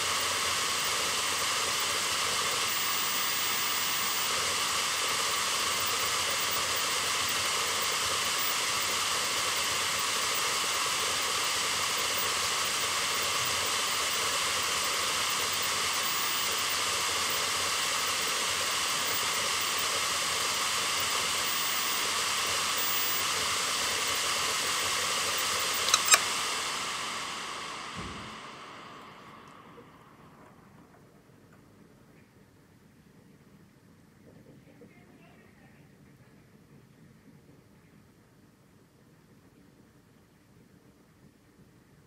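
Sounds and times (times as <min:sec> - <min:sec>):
high tones from spindle motor: 0:00.0 - 0:07.4
hard drive air hiss: 0:00.0 - 0:30.4
sharp click: 0:25.7 - 0:26.3.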